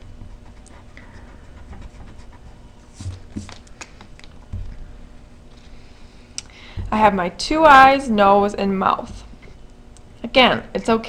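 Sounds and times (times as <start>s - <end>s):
pencil scratching on paper: 0.0s - 3.5s.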